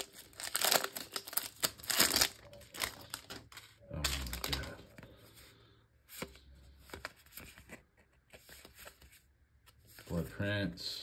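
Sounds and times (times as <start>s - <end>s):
card rustle: 0.0s - 5.5s, 6.1s - 10.4s
cards being flipped: 6.1s - 10.2s.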